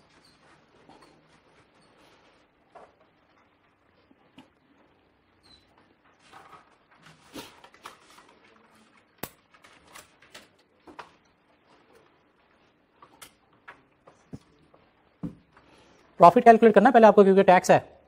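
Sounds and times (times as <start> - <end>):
paper rustling: 5.8 - 15.0.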